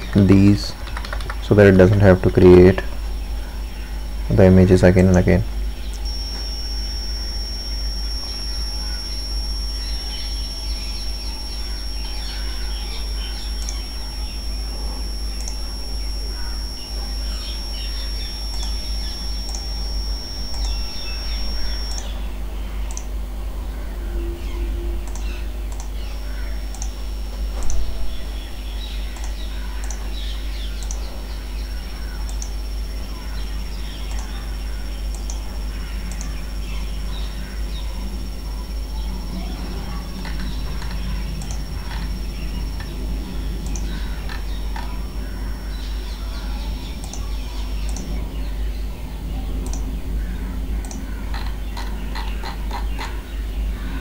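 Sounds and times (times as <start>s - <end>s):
steady low hum: 0.0s - 54.0s
thin high-pitched whine: 0.0s - 54.0s
computer mouse clicks: 0.8s - 2.5s, 13.5s - 13.9s, 20.5s - 22.1s, 22.9s - 23.1s, 25.0s - 26.0s, 26.7s - 27.0s, 29.1s - 31.1s, 32.0s - 32.6s, 33.9s - 34.4s, 35.1s - 35.5s, 36.1s - 36.4s, 39.9s - 43.0s, 43.6s - 45.0s, 47.0s - 48.2s, 49.6s - 49.9s
faint high-pitched chirps: 2.1s - 54.0s.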